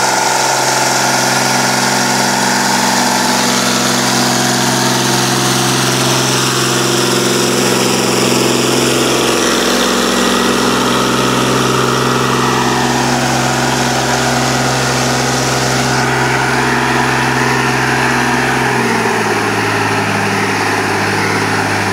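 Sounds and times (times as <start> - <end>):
tractor diesel engine under load: 0.0 - 21.9.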